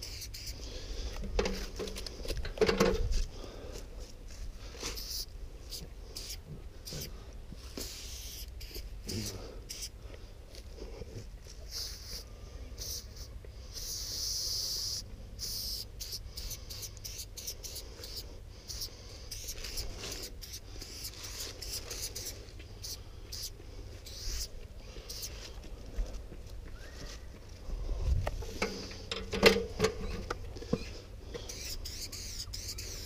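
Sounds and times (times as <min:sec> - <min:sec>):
spray paint can hissing: 0:00.0 - 0:00.7, 0:04.9 - 0:05.3, 0:06.2 - 0:07.1, 0:07.8 - 0:09.9, 0:11.7 - 0:12.2, 0:12.8 - 0:25.4, 0:31.4 - 0:33.0.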